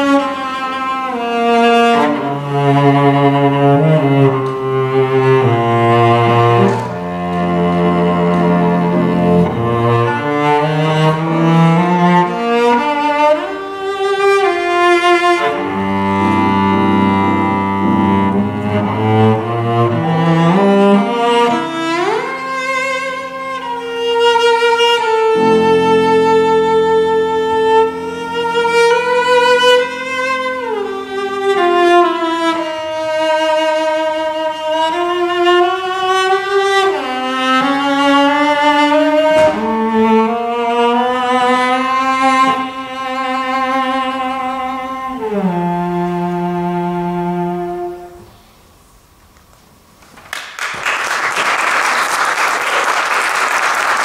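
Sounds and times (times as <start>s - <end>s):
cello playing slow melody: 0.0s - 48.8s
soft piano accompaniment: 0.0s - 49.9s.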